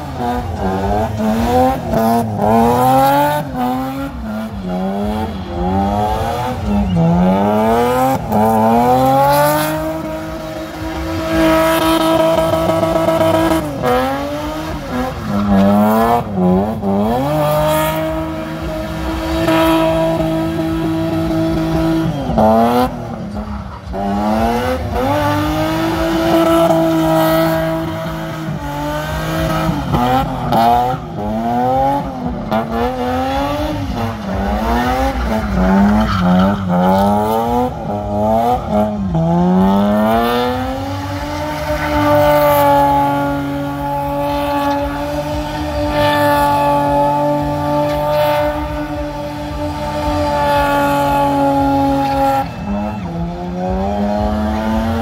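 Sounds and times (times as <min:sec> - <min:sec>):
car engine revving hard: 0:00.0 - 0:55.0.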